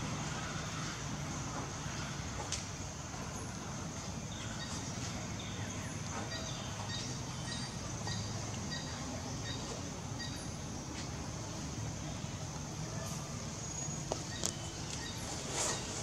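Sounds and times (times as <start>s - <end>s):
bird chirping: 4.3s - 10.6s.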